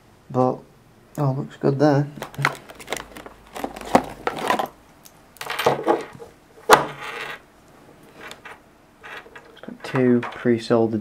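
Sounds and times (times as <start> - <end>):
handling clatter on wooden table: 5.4 - 7.4.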